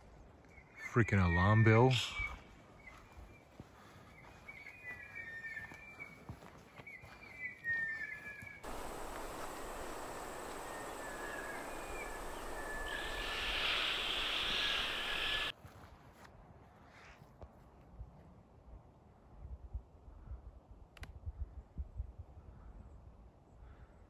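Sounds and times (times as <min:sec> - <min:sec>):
faint bird calls: 0:03.8 - 0:15.5
bright hiss: 0:08.6 - 0:15.5
steady rushing noise: 0:08.6 - 0:15.5.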